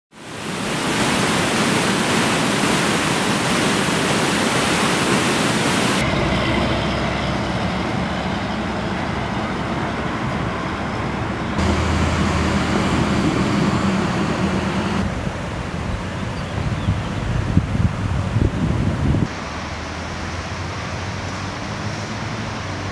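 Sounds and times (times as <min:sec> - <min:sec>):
water rushing over weir: 0:00.1 - 0:22.9.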